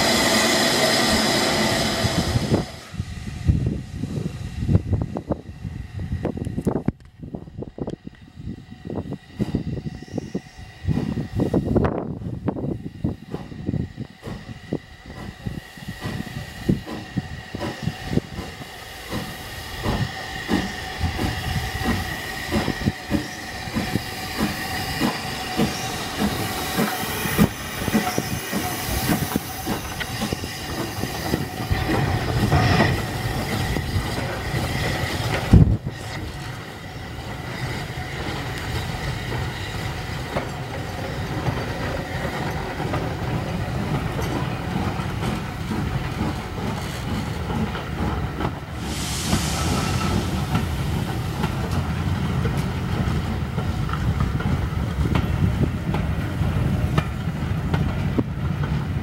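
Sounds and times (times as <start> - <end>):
steam hiss: 0.0 - 6.2, 8.6 - 58.6
steam locomotives chuffing: 0.0 - 59.0
train wheels clattering over rail joints: 15.1 - 59.0.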